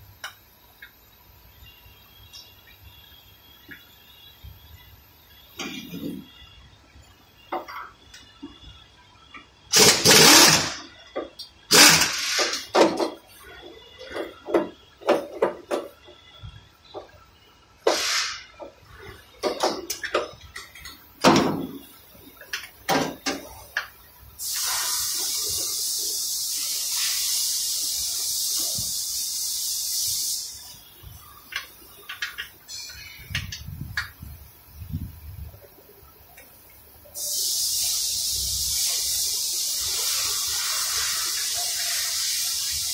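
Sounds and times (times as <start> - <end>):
pneumatic wrench bursts: 9.7 - 10.9, 11.7 - 13.0, 17.9 - 18.5, 24.4 - 30.6, 37.2 - 42.9
pressurised hiss: 9.7 - 11.0, 11.7 - 20.2, 20.8 - 42.9.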